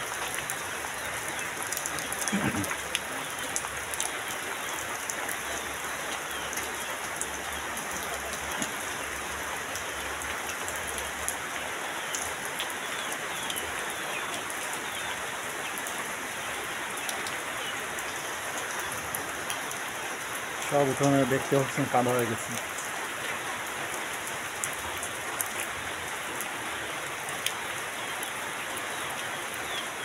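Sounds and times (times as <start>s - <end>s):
heavy rain pouring: 0.0s - 30.0s
sharp raindrop impacts: 1.3s - 11.4s.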